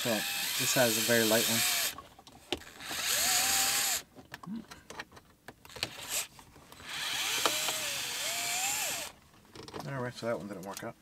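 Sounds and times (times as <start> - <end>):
cordless screwdriver motor whining: 0.0 - 2.0, 2.6 - 4.0, 5.7 - 9.2.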